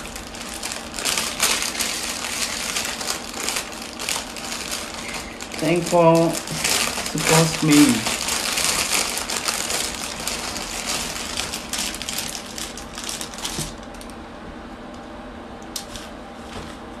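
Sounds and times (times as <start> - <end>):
plastic bag crinkling: 0.0 - 14.2.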